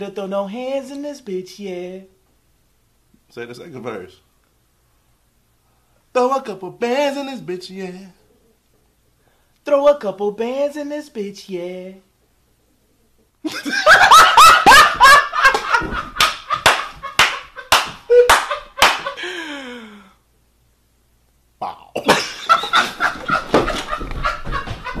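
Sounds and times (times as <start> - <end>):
man laughing hysterically: 13.4 - 19.6, 22.0 - 25.0.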